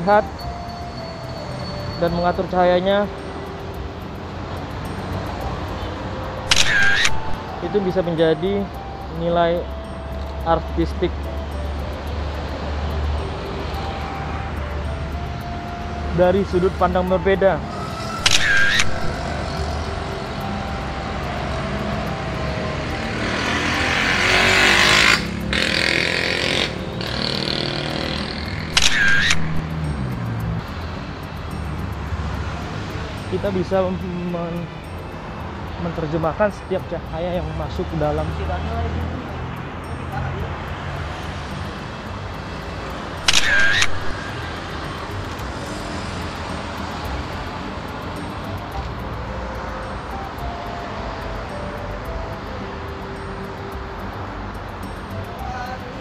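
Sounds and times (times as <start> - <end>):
steady traffic hum: 0.0 - 56.0
camera shutter click: 6.5 - 7.4, 18.2 - 19.2, 28.7 - 29.7, 43.2 - 44.3
vehicle passing close: 9.2 - 36.5.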